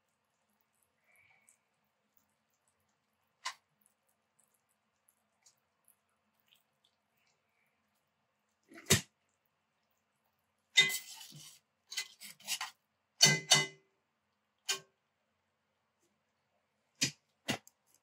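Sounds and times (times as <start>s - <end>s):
utensil scraping pot: 10.7s - 13.7s.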